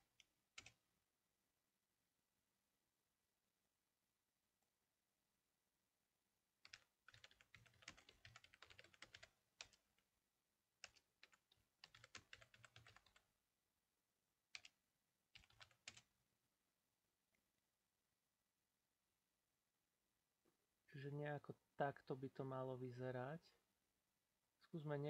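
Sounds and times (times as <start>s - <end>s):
faint keyboard typing: 0.1s - 0.8s, 6.6s - 10.1s, 10.8s - 13.3s, 14.5s - 16.1s.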